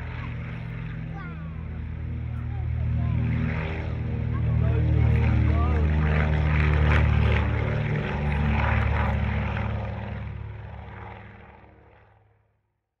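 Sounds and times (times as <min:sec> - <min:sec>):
propeller aircraft engine drone: 0:00.0 - 0:12.9.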